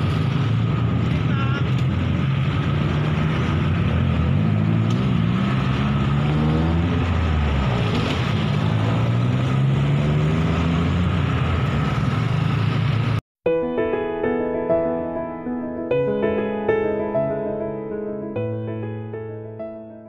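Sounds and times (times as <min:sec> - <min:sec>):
locomotive engine droning: 0:00.0 - 0:13.2.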